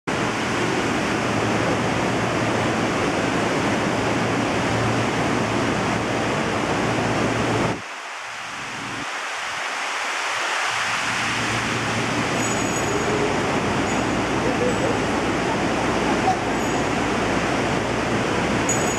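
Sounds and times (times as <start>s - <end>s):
aquarium water rushing: 0.1s - 18.9s.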